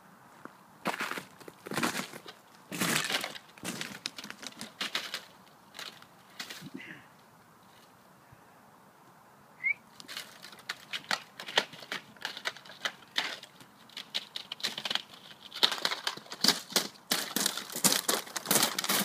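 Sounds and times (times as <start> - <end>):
ice cracking underfoot: 0.9 - 6.8, 10.0 - 19.0.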